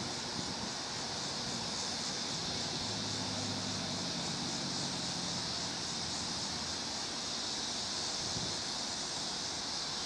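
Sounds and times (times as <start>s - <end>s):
locomotive engine drone: 0.0s - 7.2s
steady high hiss: 0.0s - 10.0s.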